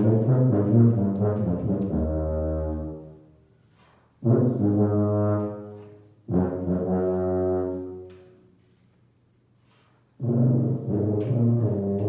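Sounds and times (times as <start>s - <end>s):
tuba notes: 0.0s - 3.6s, 4.2s - 8.4s, 10.2s - 12.0s.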